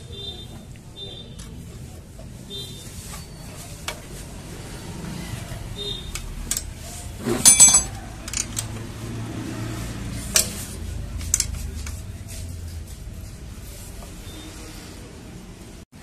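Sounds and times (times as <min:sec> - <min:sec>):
hand tools clinking on metal: 0:06.5 - 0:08.8.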